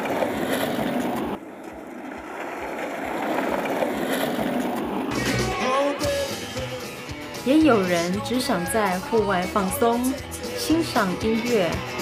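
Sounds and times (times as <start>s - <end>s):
skateboard wheels rolling on asphalt: 0.0s - 6.7s.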